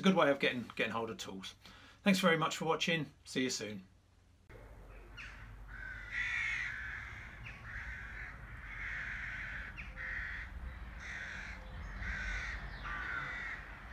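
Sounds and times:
bird calling: 4.5s - 13.9s.

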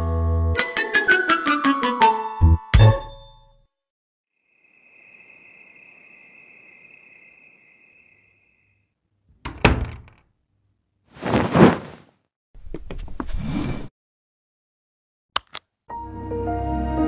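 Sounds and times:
crickets trilling: 4.4s - 8.8s.

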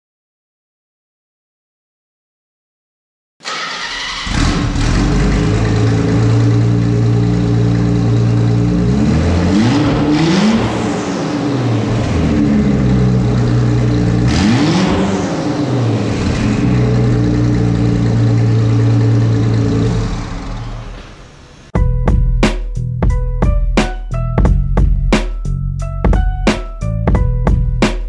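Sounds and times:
car engine idling and revving: 3.7s - 21.7s.

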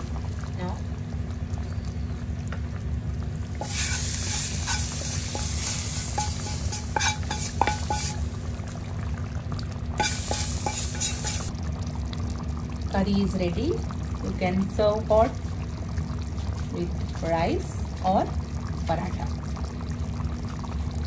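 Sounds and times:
oil sizzling: 0.0s - 21.0s
utensil clicking and scraping pan: 3.6s - 8.2s, 10.0s - 11.5s.

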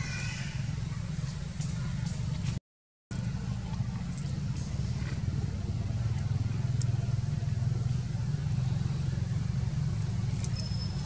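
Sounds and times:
thin high chirp: 10.4s - 11.0s.

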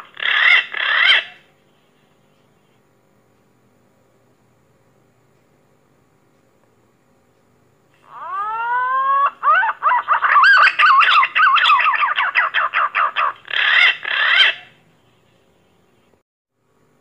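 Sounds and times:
pigeon whistling song: 8.3s - 14.7s.

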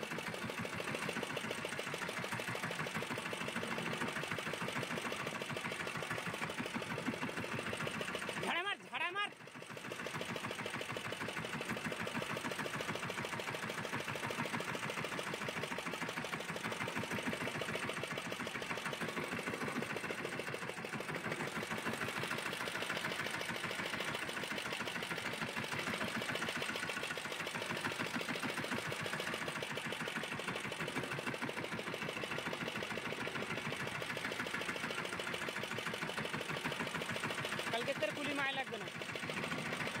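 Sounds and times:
boat engine idling: 0.0s - 40.0s.

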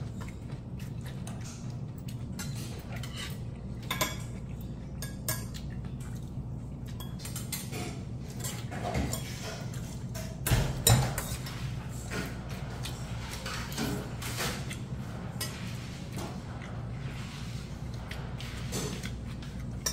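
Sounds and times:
steady low hum: 0.0s - 19.9s.

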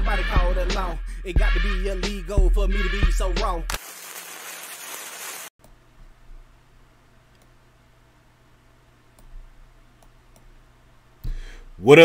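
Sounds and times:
faint clicks: 7.3s - 7.6s.

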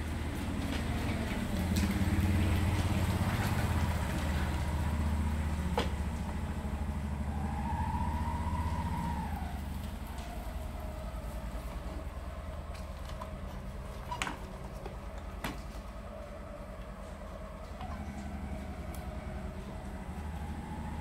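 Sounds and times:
vehicle engine running: 0.0s - 21.0s.

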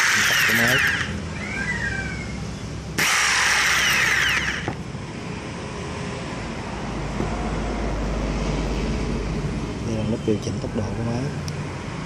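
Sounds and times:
jigsaw running: 0.0s - 1.1s, 3.0s - 4.7s.

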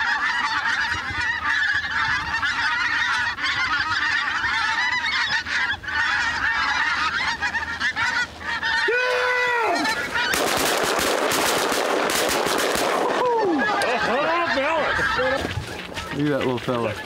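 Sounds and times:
geese honking: 0.0s - 17.0s.

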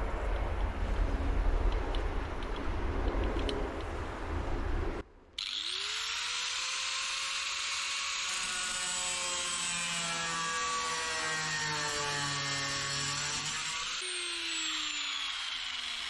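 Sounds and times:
power tool whining and cutting steel: 5.4s - 16.0s.

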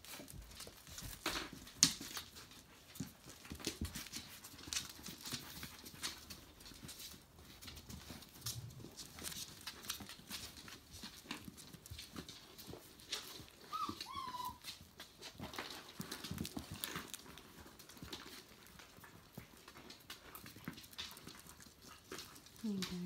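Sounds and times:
puppy claws clicking on wood: 0.0s - 23.0s
puppy whimper: 13.2s - 14.8s.

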